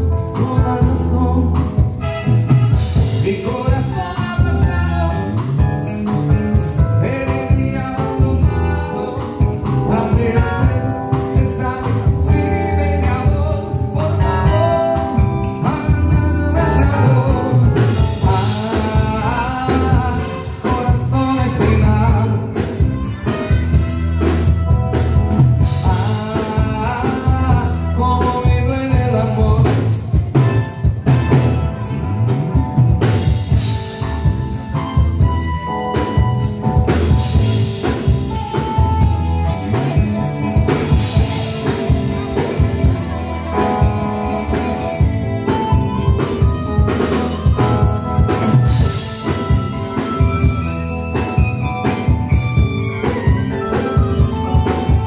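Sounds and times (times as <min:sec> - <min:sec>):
person singing: 0:00.0 - 0:24.3, 0:25.6 - 0:30.7
live band through speakers: 0:00.0 - 0:55.0.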